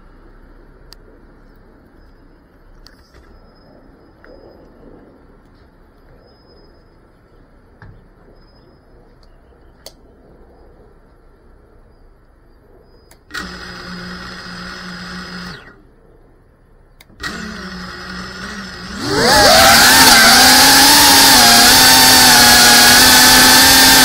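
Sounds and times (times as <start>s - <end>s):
drone motors whining: 12.8s - 15.9s, 17.0s - 24.0s.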